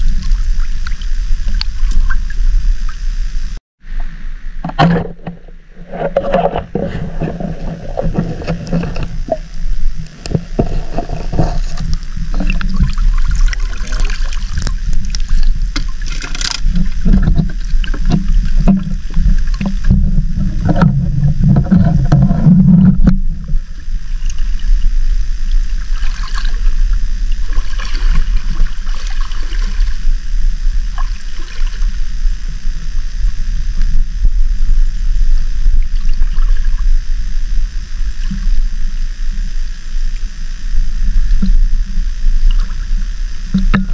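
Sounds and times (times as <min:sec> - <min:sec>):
faint ticks: 0:00.0 - 0:03.0
underwater sloshing rumble: 0:00.0 - 0:43.9.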